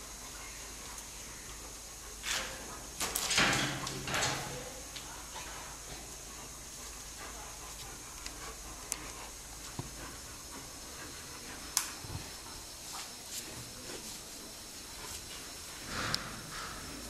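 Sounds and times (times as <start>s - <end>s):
steady hiss: 0.0s - 17.0s
paws and claws clicking: 5.0s - 13.6s.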